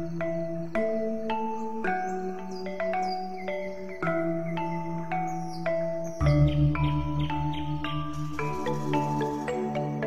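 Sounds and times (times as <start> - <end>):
struck ringing notes: 3.8 - 9.7
low drone: 4.0 - 9.7.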